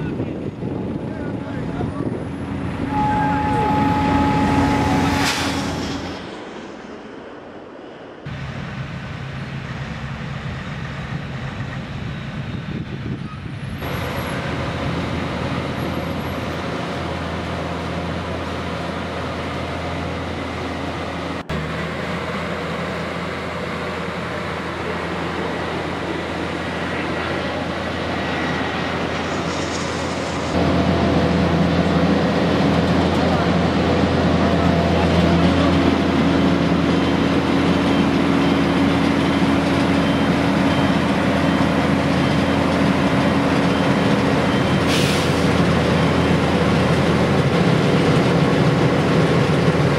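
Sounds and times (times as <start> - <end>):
heavy diesel machinery running: 0.0 - 49.9.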